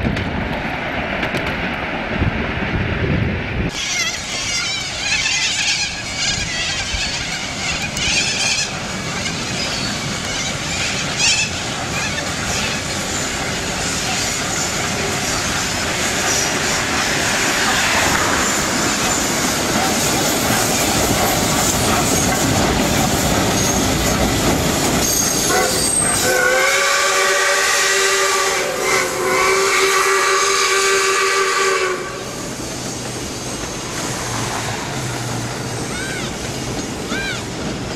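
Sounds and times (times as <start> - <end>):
car road and wind noise: 0.0 - 3.8
steam locomotive whistle: 25.1 - 32.5.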